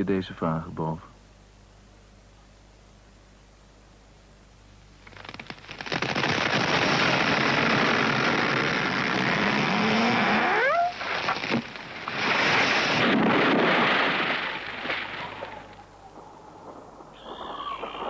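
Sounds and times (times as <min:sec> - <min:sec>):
bonfire crackling: 0:04.8 - 0:18.0
short rising whistle: 0:17.2 - 0:18.0.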